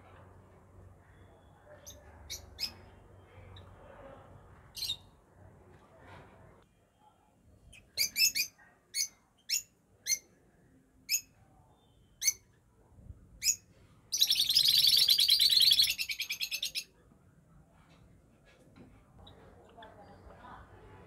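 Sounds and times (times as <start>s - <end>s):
lovebirds chirping and chattering: 0.8s - 5.3s, 7.6s - 10.4s, 11.0s - 12.6s, 13.4s - 17.0s.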